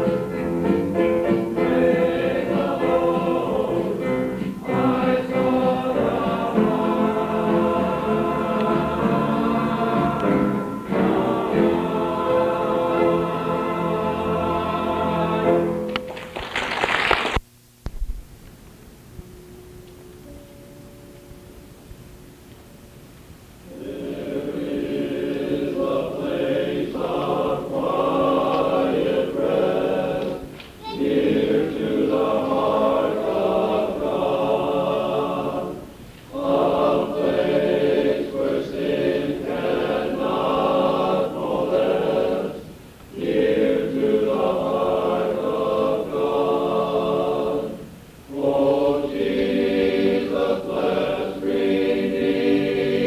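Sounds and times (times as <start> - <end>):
men's chorus singing: 1.6 - 15.9, 23.7 - 53.0.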